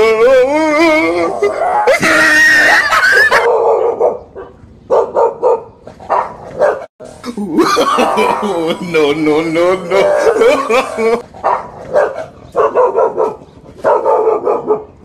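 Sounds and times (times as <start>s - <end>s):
dogs barking and yelping: 1.0s - 6.9s, 9.8s - 15.0s.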